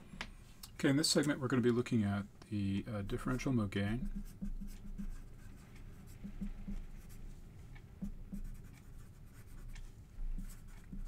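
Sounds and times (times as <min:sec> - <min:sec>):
low steady hum: 0:00.0 - 0:11.0
marker writing on whiteboard: 0:03.1 - 0:07.4, 0:08.0 - 0:11.0.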